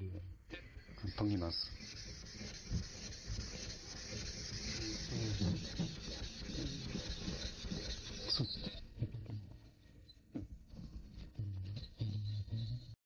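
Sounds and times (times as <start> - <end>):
blade scraping on whetstone: 1.0 - 8.8.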